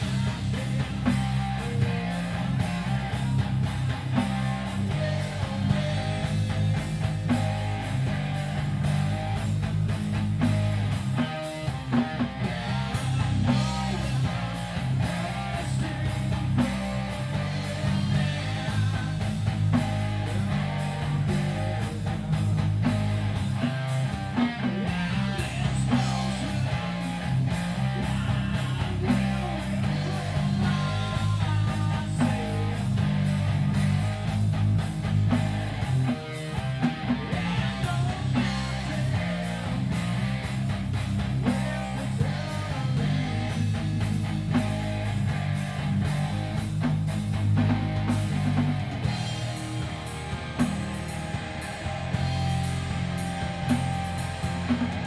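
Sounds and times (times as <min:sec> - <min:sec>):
bass guitar: 0:00.0 - 0:55.0
drum kit: 0:00.0 - 0:55.0
electric guitar: 0:00.0 - 0:55.0
person singing into microphone: 0:28.0 - 0:32.9.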